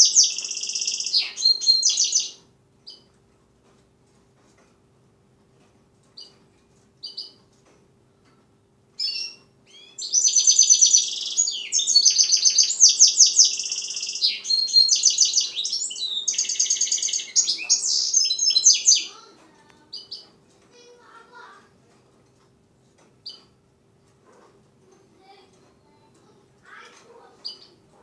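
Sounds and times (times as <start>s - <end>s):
bird call notes: 0.0s - 2.4s, 9.0s - 19.2s
bird twittering song: 0.0s - 3.1s, 7.0s - 7.5s, 9.0s - 20.4s, 23.2s - 23.6s, 26.7s - 27.8s.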